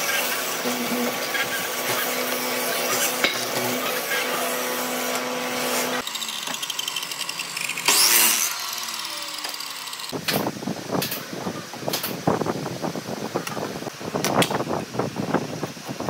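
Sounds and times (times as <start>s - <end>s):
miter saw blade winding down: 5.1s - 10.2s.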